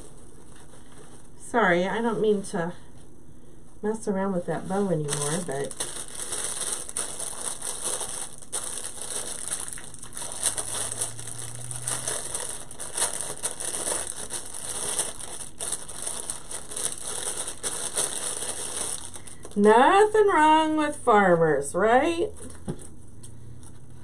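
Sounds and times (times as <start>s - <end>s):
plastic bag crinkling: 4.8s - 19.7s.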